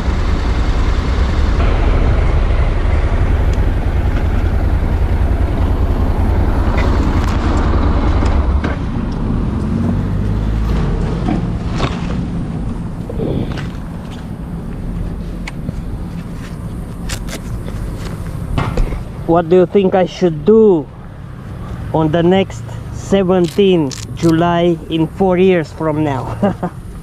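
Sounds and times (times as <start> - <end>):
motorcycle engine rumble: 0.0 - 27.0
branches brushing: 11.6 - 18.6
wind on microphone: 12.2 - 16.7.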